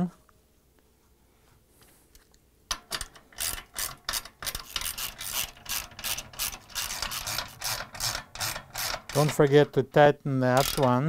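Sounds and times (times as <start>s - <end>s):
ratchet wrench clicking: 2.7s - 9.5s, 10.6s - 11.0s.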